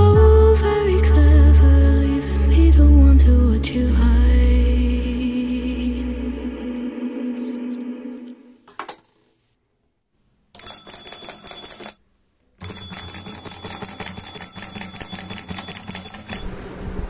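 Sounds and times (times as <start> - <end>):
small brass bell rung rapidly: 12.6 - 16.5.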